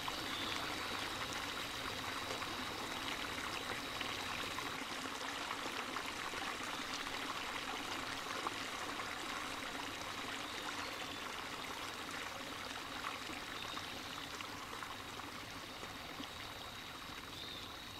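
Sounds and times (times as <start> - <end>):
water splashing trickle: 0.0 - 17.9.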